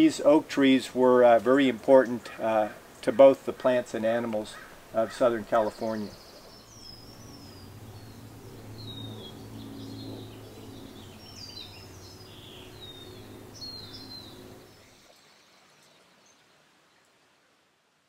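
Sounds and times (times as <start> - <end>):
bird chirps: 4.5 - 16.4
low background hum: 4.6 - 15.0.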